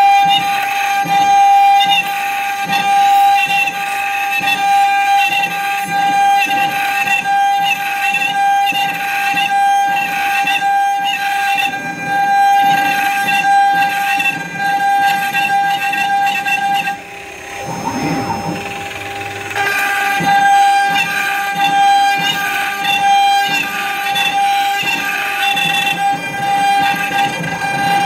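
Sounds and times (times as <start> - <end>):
router bit cutting wood: 0.0 - 28.0
router spindle whine: 0.0 - 28.0.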